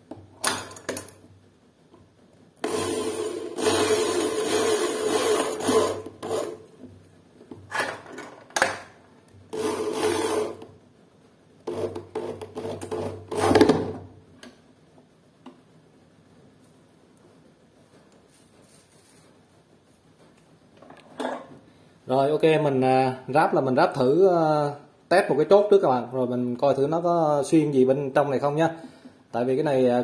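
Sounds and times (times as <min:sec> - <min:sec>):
drill driving screws: 0:02.6 - 0:06.6, 0:09.5 - 0:10.7, 0:11.7 - 0:14.0.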